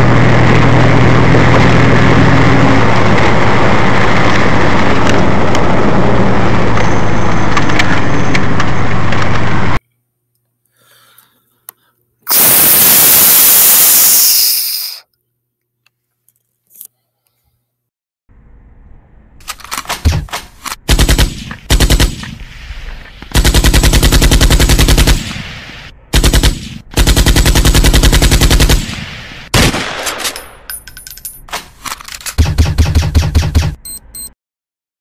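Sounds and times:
automatic gunfire bursts: 0:20.8 - 0:22.2, 0:23.3 - 0:25.3, 0:26.1 - 0:29.0.

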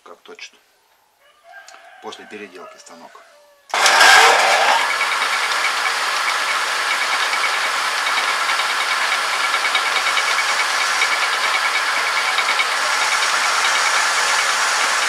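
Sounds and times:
metal lathe running: 0:03.7 - 0:15.0.

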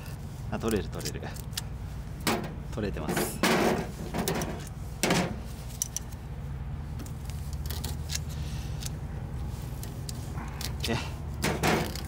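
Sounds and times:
steady low rumble: 0:00.0 - 0:12.0
clicks and knocks of tape removal: 0:11.4 - 0:12.0.

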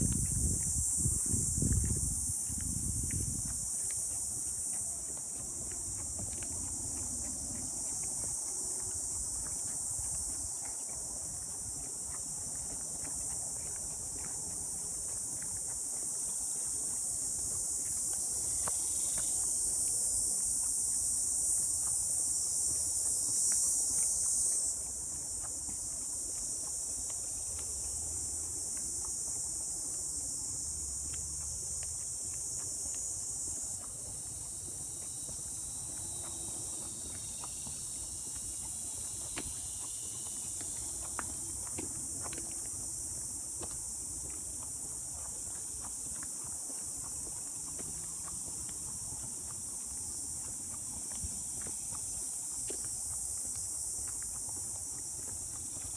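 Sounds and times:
footsteps on dirt: 0:00.0 - 0:55.9
insects droning: 0:00.0 - 0:55.9.

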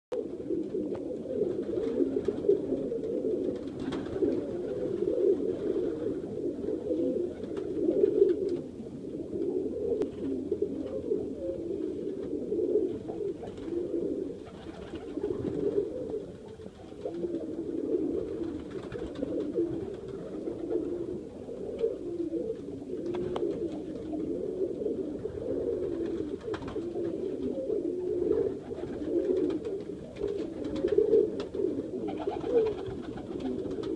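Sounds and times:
pigeons cooing: 0:00.2 - 0:33.9.

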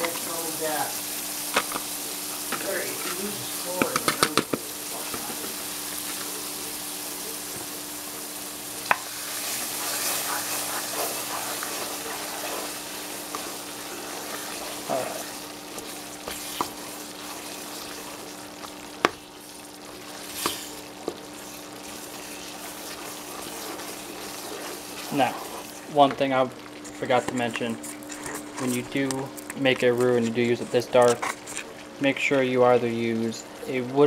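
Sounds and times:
onion sizzling in a pot: 0:00.0 - 0:34.0
wooden spoon stirring: 0:08.9 - 0:32.0.

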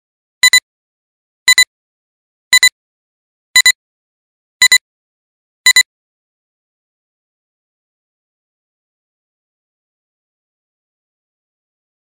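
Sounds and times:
electronic countdown beeps: 0:00.4 - 0:00.6, 0:01.5 - 0:01.7, 0:02.5 - 0:02.8, 0:03.6 - 0:03.8, 0:04.6 - 0:04.8, 0:05.7 - 0:05.9.

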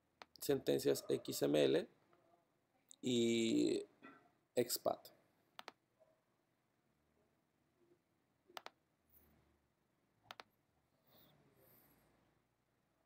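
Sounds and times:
computer mouse double clicks: 0:10.3 - 0:10.5.

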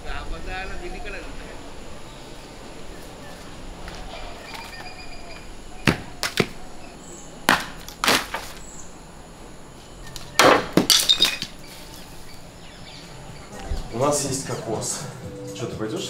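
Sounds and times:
coconuts thudding: 0:05.8 - 0:06.8, 0:07.4 - 0:08.6, 0:10.2 - 0:11.6.

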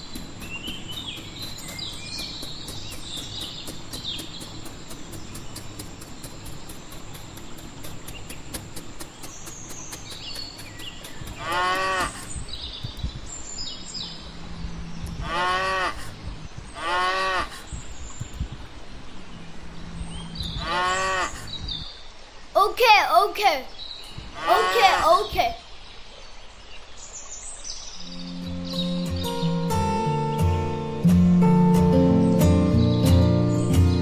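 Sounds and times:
cow mooing: 0:15.2 - 0:16.0, 0:16.8 - 0:17.5.

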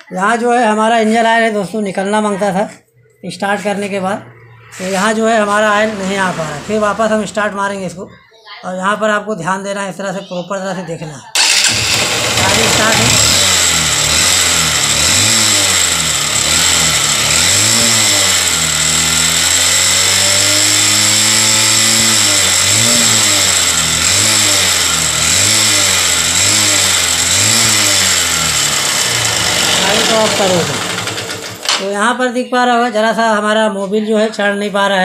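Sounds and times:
motorcycle engine revving: 0:03.6 - 0:07.6, 0:11.4 - 0:31.9.

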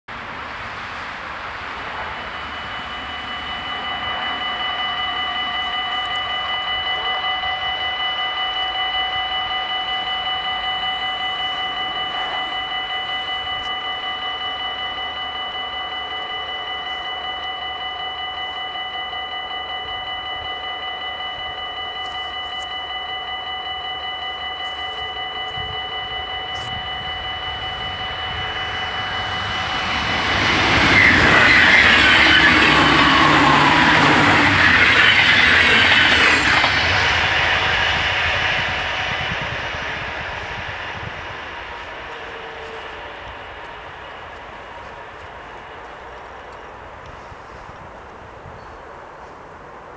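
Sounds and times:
level crossing bells ringing: 0:02.0 - 0:38.0.

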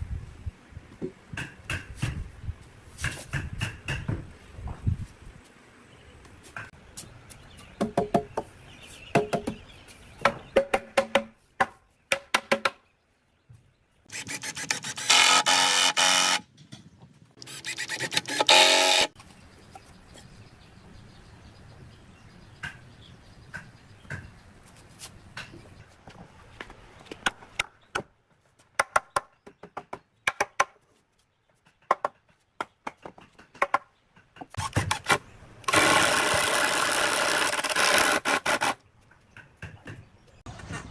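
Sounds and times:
cordless drill boring into wood: 0:14.1 - 0:16.4, 0:17.4 - 0:19.2, 0:35.7 - 0:38.8
power tool running: 0:14.1 - 0:16.4, 0:17.4 - 0:19.2, 0:35.7 - 0:38.8
wooden knocks and clatter: 0:31.5 - 0:34.6.

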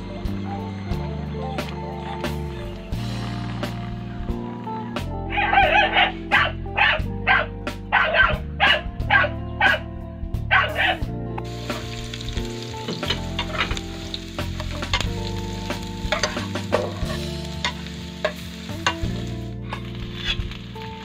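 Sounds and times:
onion sizzling in oil: 0:11.4 - 0:21.0
spatula scraping pan: 0:16.1 - 0:19.1, 0:19.7 - 0:20.6.

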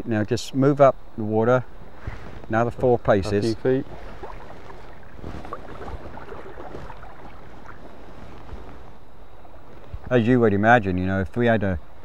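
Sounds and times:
river water rushing: 0:03.5 - 0:08.2.

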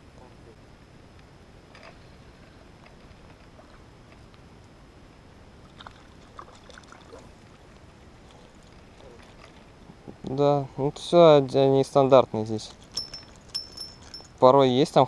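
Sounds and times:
moving water: 0:01.7 - 0:04.7, 0:05.4 - 0:11.1, 0:12.5 - 0:14.5.

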